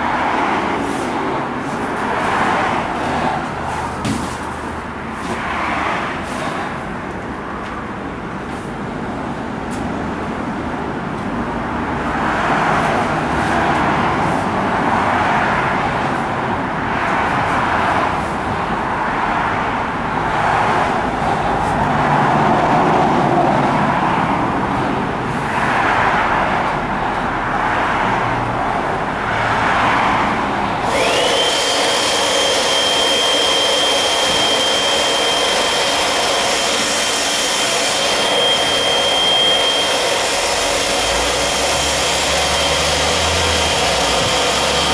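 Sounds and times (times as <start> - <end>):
rushing noise: 11.4 - 44.9
electric inflator pump whining: 30.8 - 44.9.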